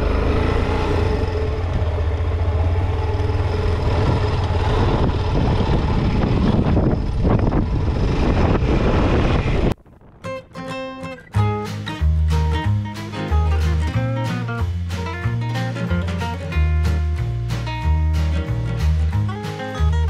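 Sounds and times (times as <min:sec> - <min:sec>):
motorcycle engine running: 0:00.0 - 0:09.8.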